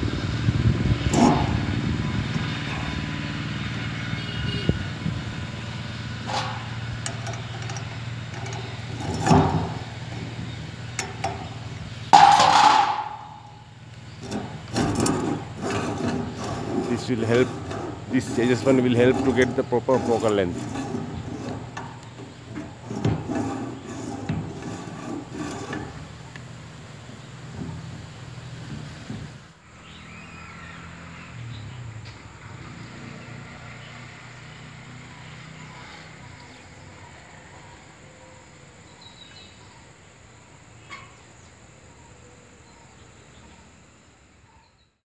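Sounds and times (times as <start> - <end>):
insects droning: 1.1 - 44.8
rubbing on metal: 6.2 - 13.5, 14.2 - 26.3.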